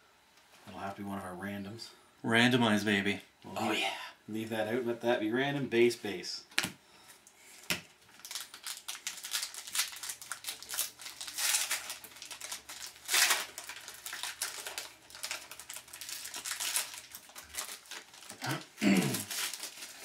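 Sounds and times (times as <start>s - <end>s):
foil wrapper crinkling and tearing: 8.1s - 20.0s.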